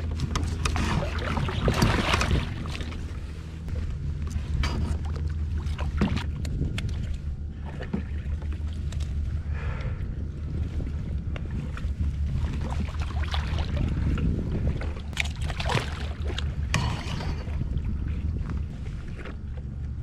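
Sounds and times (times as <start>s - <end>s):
wind buffeting microphone: 0.0s - 20.0s
fish splashing water: 0.3s - 3.1s, 15.1s - 17.4s.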